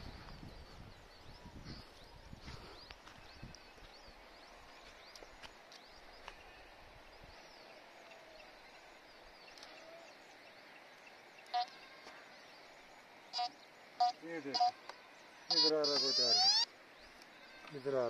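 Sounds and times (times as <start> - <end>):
faint bird chirps: 0.0 - 18.0
metal detector beeps: 15.5 - 16.6.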